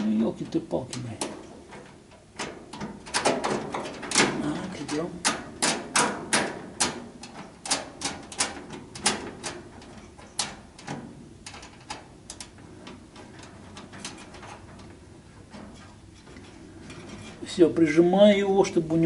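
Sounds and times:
metal clicks and taps: 4.9s - 14.9s.

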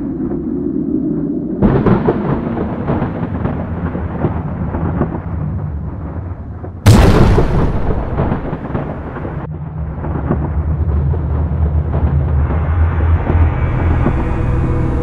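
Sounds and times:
low rolling thunder: 0.0s - 15.0s
sharp thunderclap: 1.6s - 12.6s.

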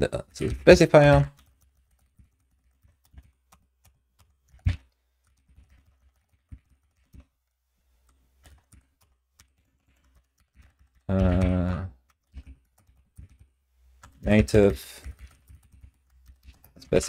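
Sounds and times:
keyboard typing: 0.0s - 17.0s
person humming: 11.1s - 11.9s.

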